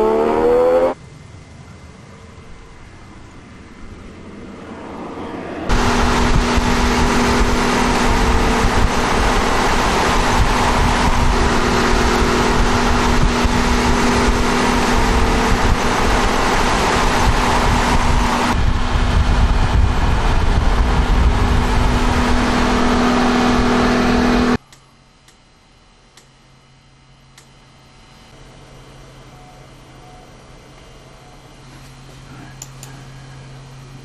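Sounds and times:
race car engine: 0:00.0 - 0:24.6
wind rush: 0:02.4 - 0:24.6.

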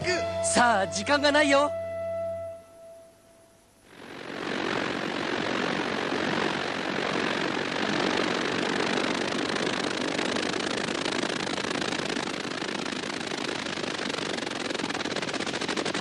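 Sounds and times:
speedboat engine and spray rushing: 0:03.9 - 0:16.0.

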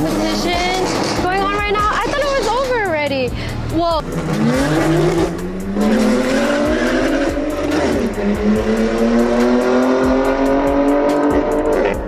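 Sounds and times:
car engine accelerating hard: 0:03.4 - 0:12.0.

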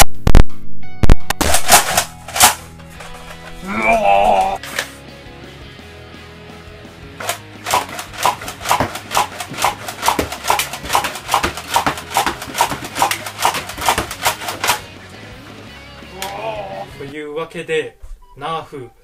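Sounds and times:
foam blaster pops and clacks: 0:07.2 - 0:14.9.

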